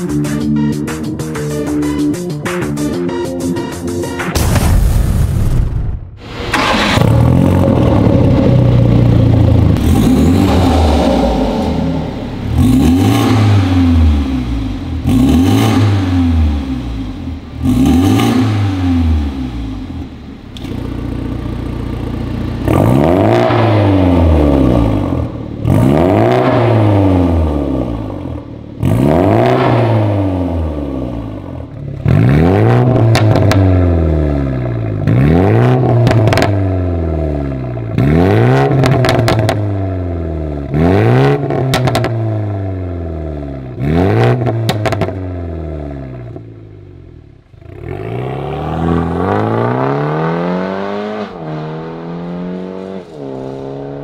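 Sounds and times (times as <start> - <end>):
car engine revving: 6.2 - 54.0
exhaust crackles and pops: 32.0 - 33.8, 35.8 - 36.6, 37.8 - 39.7, 41.5 - 42.2, 44.4 - 45.2.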